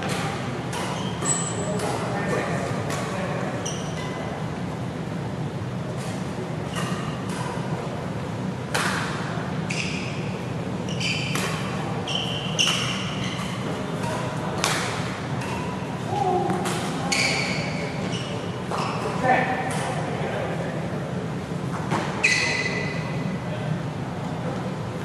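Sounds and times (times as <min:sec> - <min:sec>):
steady low hum: 0:00.0 - 0:22.2
shoes squeaking on court: 0:00.8 - 0:02.1, 0:02.9 - 0:04.3, 0:09.7 - 0:14.3, 0:16.8 - 0:19.2, 0:21.7 - 0:23.2
rackets striking shuttlecock: 0:11.3 - 0:11.8, 0:12.6 - 0:17.3.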